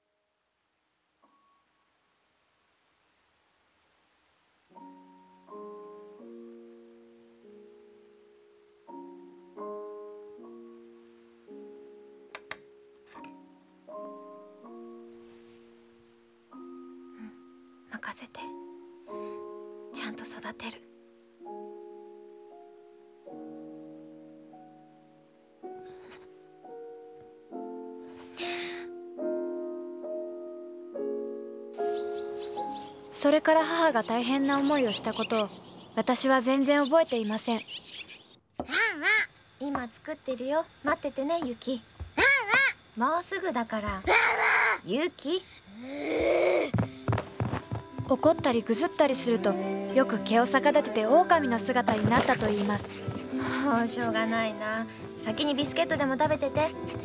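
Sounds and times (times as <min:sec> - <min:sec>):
soft piano music: 0:04.7 - 0:38.3, 0:46.8 - 0:57.0
slow solo piano chords: 0:46.8 - 0:57.0.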